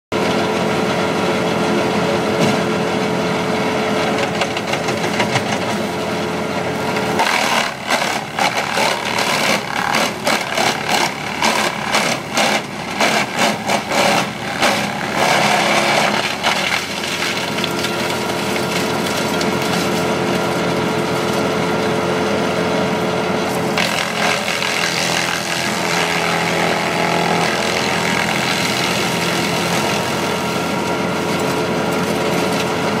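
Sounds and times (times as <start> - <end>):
wood chipper running: 0.1 - 33.0
wood cracking and chomping: 7.2 - 20.0, 23.8 - 26.4.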